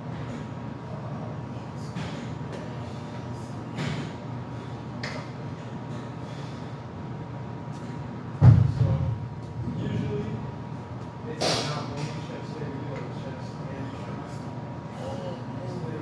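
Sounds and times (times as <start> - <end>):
loud low thud: 8.4 - 9.9.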